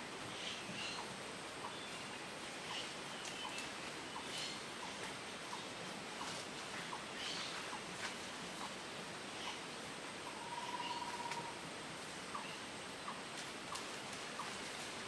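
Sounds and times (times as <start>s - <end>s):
steady hiss: 0.0s - 15.0s
bird trill: 10.3s - 11.6s.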